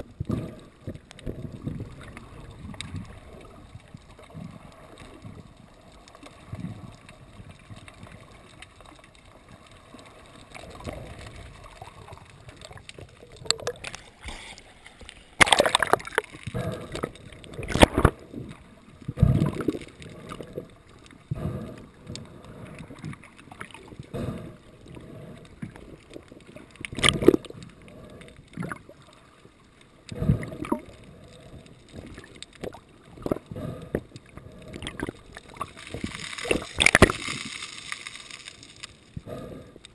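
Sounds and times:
water gurgling and sloshing: 0.0s - 39.9s
loud water splashes: 15.4s - 16.3s, 35.7s - 38.3s.

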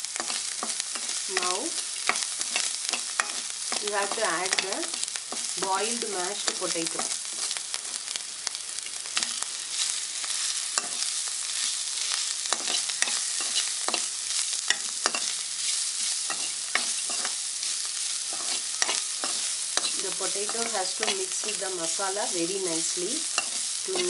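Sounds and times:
frying sizzle: 0.0s - 24.0s
spatula scraping and knocking pan: 0.2s - 5.7s, 12.4s - 21.6s.

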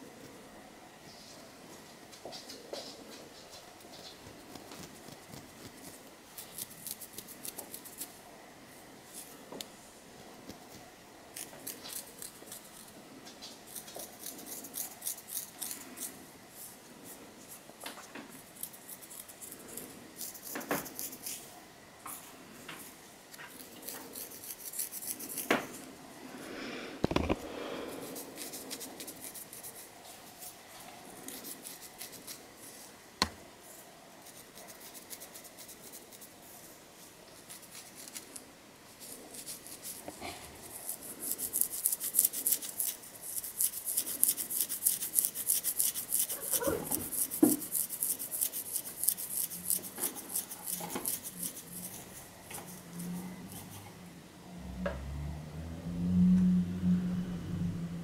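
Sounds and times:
fingernails scratching scalp: 4.5s - 8.1s, 13.7s - 16.2s, 18.3s - 21.5s, 23.5s - 25.5s, 28.0s - 30.6s, 31.2s - 32.4s, 34.2s - 36.3s, 39.0s - 53.8s.

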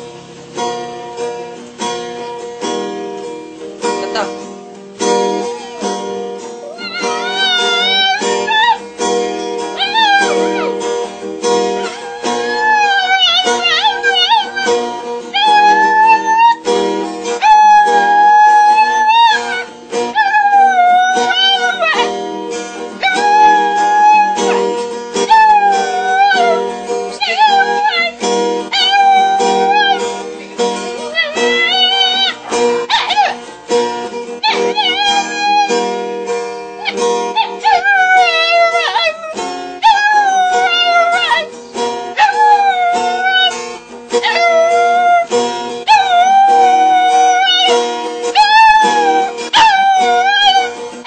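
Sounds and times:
strummed acoustic guitar: 0.0s - 51.0s
small dog howling: 5.3s - 8.8s, 9.6s - 16.7s, 17.3s - 30.3s, 30.9s - 33.4s, 34.4s - 35.9s, 36.8s - 41.5s, 42.1s - 43.6s, 44.2s - 50.8s.

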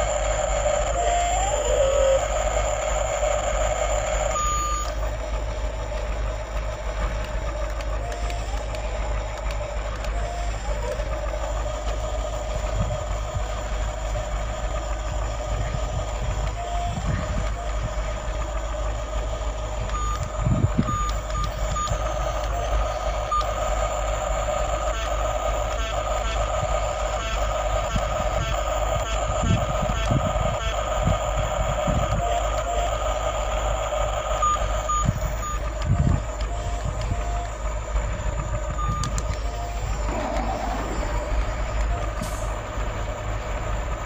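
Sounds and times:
toy electronic beeper tone: 0.0s - 5.0s, 10.0s - 11.2s, 16.4s - 18.0s, 19.9s - 33.0s, 34.4s - 37.6s, 38.2s - 42.5s.

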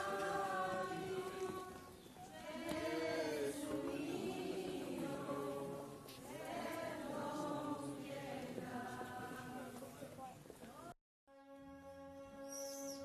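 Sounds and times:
group singing religious chant: 0.0s - 9.8s.

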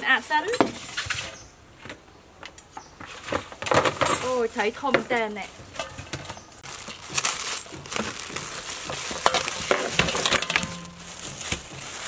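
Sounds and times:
plastic bag rustling: 3.1s - 12.0s.

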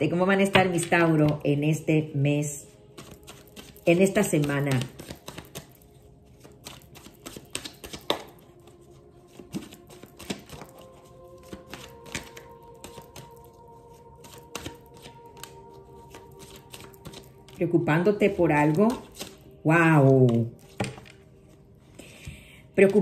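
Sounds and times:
quiet background music: 0.0s - 23.0s
cards being shuffled: 2.9s - 17.6s, 18.6s - 19.4s, 20.0s - 22.2s.

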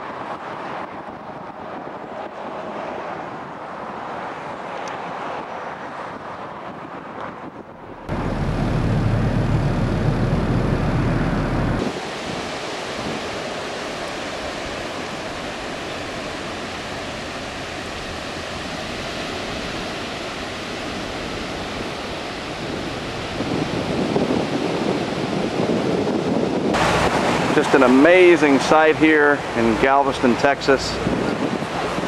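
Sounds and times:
wind: 0.0s - 32.0s
loud low rumble: 8.0s - 11.9s
surf breaking on sandy beach: 8.1s - 32.0s.

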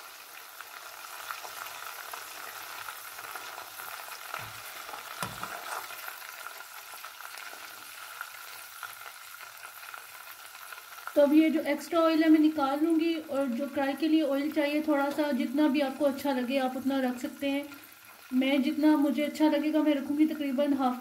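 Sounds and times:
oil sizzling in a pot: 0.0s - 21.0s
soft knocks: 5.2s - 5.6s.

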